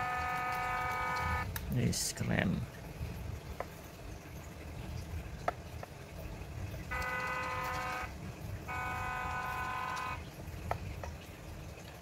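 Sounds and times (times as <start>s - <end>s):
horn toots: 6.9s - 8.1s, 8.7s - 10.2s.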